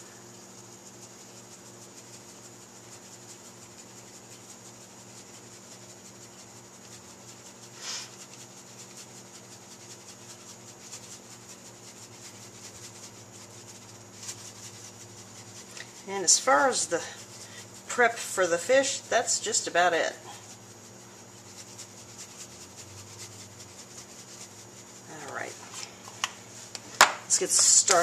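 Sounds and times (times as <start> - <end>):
spice shaker rattling: 0.0 - 28.0
steady low hum: 0.0 - 28.0.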